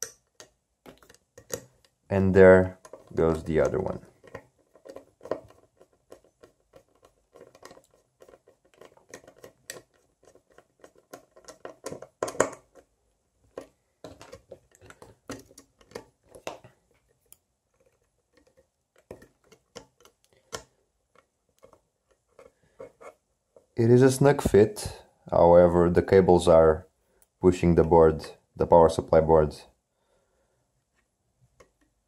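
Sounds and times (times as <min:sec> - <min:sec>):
fingers pushing wires: 0:00.0 - 0:12.9, 0:13.5 - 0:23.7.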